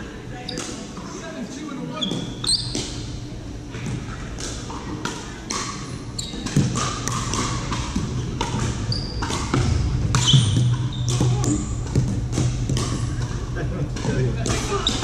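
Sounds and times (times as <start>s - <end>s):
ball bouncing on wooden court: 2.1s - 3.0s, 3.7s - 13.3s.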